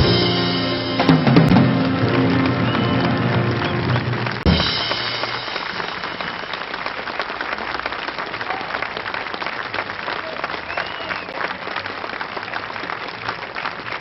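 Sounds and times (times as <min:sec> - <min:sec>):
band chord: 0:00.0 - 0:07.0
audience applauding: 0:00.0 - 0:14.0.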